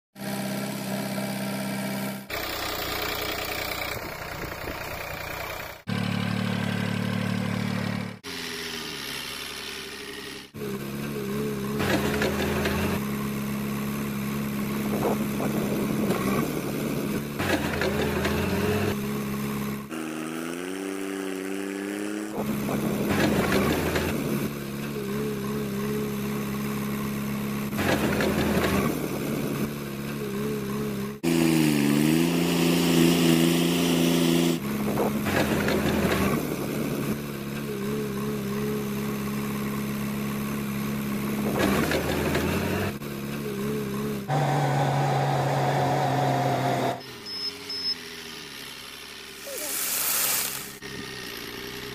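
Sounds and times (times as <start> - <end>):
heavy machinery engine idling: 2.3 - 8.1.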